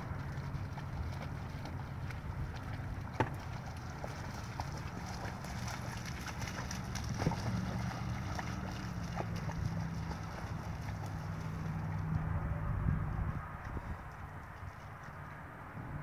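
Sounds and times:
dog splashing through puddle: 0.0 - 12.4.

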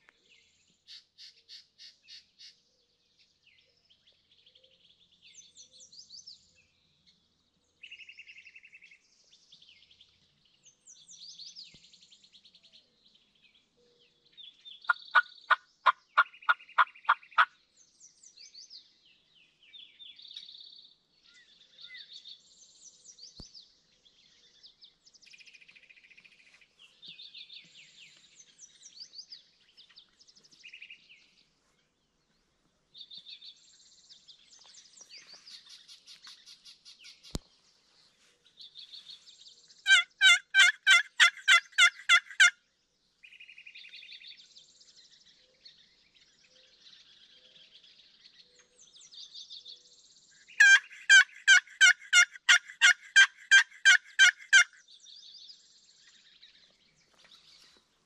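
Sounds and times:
songbirds chirping faintly: 0.0 - 58.0
turkey yelping: 39.9 - 42.5, 50.6 - 54.7.

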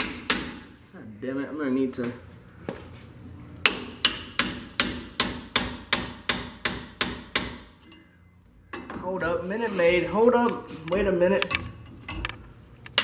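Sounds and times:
hammer striking metal: 0.0 - 0.7, 3.6 - 7.7.

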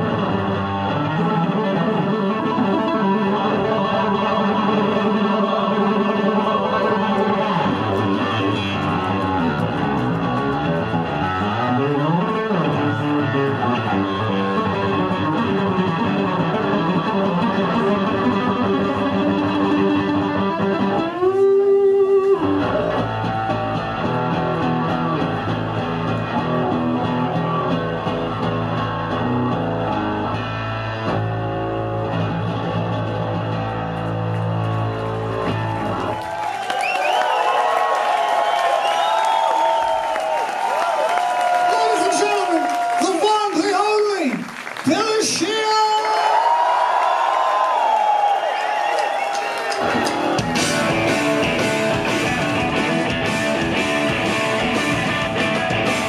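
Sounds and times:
electric bass guitar with effects: 0.0 - 36.8, 49.8 - 56.0.

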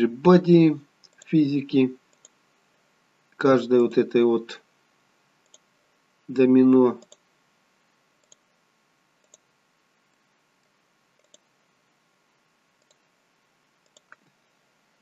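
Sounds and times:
computer mouse clicks: 1.0 - 1.4, 2.1 - 2.4, 5.4 - 5.7, 7.0 - 7.2, 8.2 - 8.5, 9.2 - 9.5, 10.1 - 11.5, 12.8 - 13.1, 13.8 - 14.4.

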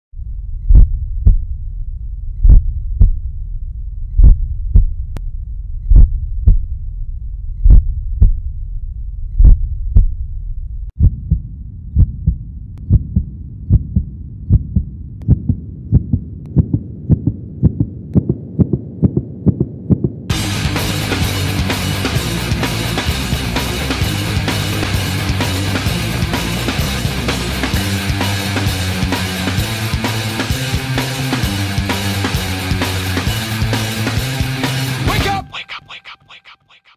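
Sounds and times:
low hum: 0.1 - 34.7
heartbeat thumps: 0.6 - 1.7, 2.3 - 5.2, 5.8 - 6.8, 7.5 - 8.6, 9.2 - 31.0
rock music: 20.3 - 35.5.

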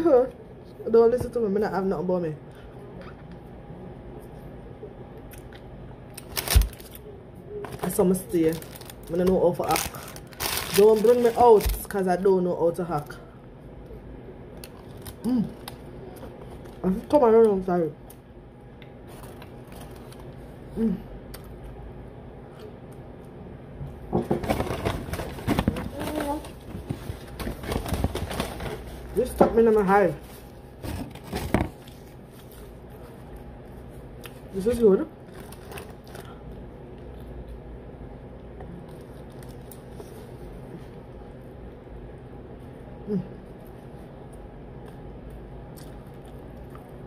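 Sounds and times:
steady low hum: 0.0 - 47.0
chewing soft food: 43.5 - 47.0.

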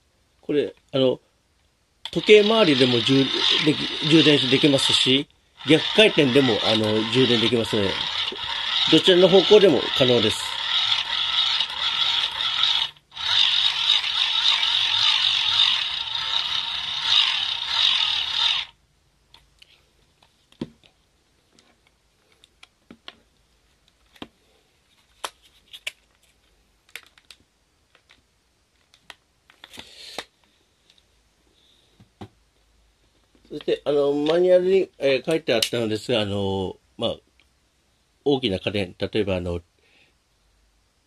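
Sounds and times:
hand-crank generator whirring: 2.1 - 18.8.

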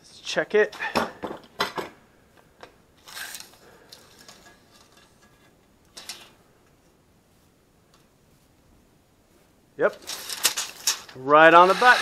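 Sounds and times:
tape measure scraping metal rod: 3.0 - 6.3.

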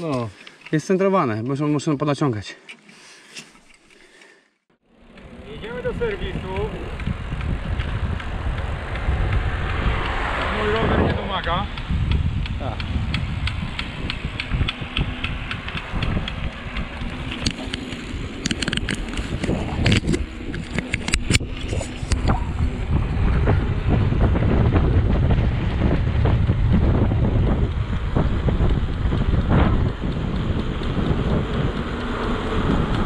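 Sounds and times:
sharp clicks and rattles: 5.1 - 33.0
wind rushing over microphone: 5.2 - 33.0
light ticking: 25.7 - 33.0.

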